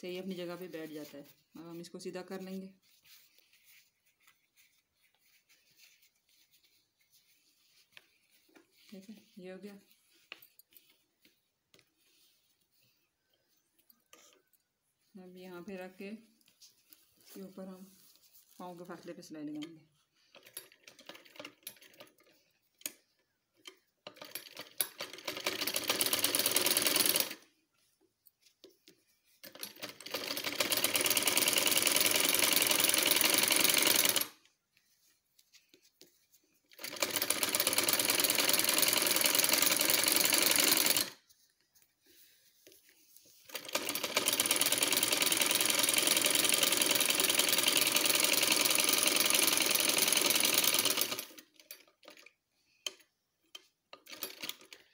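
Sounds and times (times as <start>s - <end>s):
sewing machine stitching: 24.1s - 27.4s, 29.4s - 34.4s, 36.7s - 41.2s, 43.5s - 52.3s, 54.0s - 54.9s.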